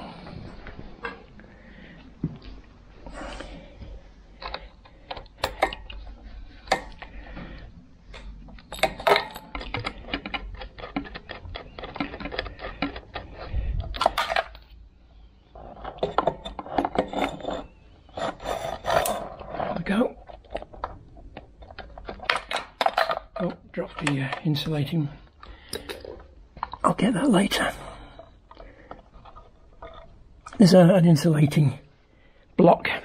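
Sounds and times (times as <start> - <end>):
metal tools clinking: 8.1 - 10.4, 15.6 - 19.4.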